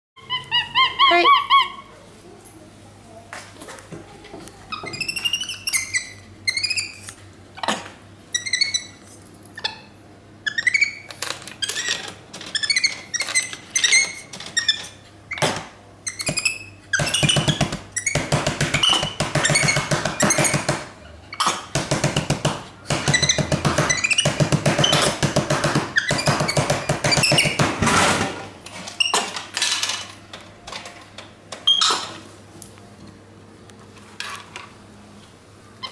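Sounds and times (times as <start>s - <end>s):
monkey chirping and squeaking: 0.2s - 1.9s, 4.7s - 21.7s, 23.1s - 25.2s, 25.9s - 27.6s, 29.0s - 29.3s, 31.7s - 32.2s.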